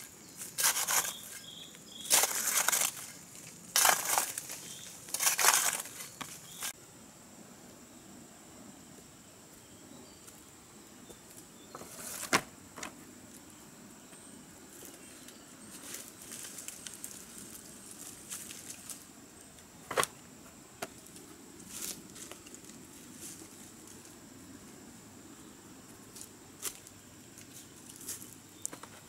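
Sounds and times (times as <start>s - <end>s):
rustling of dry leaves: 0.0s - 6.8s, 14.7s - 19.6s, 20.9s - 24.3s, 25.8s - 29.0s.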